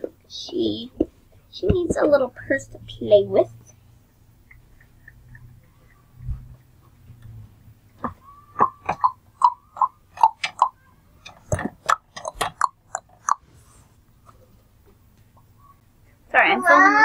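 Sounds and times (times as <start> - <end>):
sharp clicks and taps: 4.4 - 6.6, 7.2 - 13.4.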